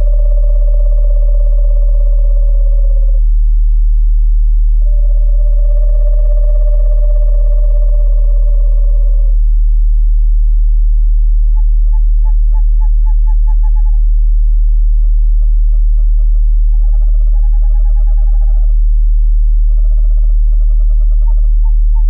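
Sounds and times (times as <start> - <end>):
owl calls: 0.0 - 3.2, 4.8 - 9.4, 11.4 - 14.1, 15.0 - 18.8, 19.6 - 22.0
loud steady deep tone: 0.0 - 22.0.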